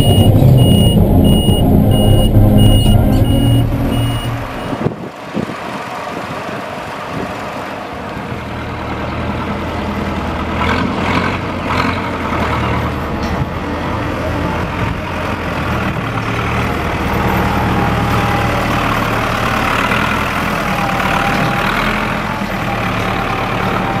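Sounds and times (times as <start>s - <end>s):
high beeping: 0.0s - 4.9s
tractor diesel engine running: 0.0s - 11.6s, 12.2s - 24.0s
tractors driving past: 0.0s - 24.0s.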